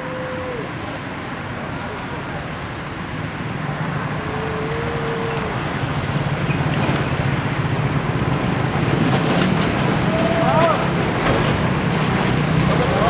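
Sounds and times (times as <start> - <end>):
truck engines humming: 0.0 - 13.0
vehicle passing close by: 3.6 - 13.0.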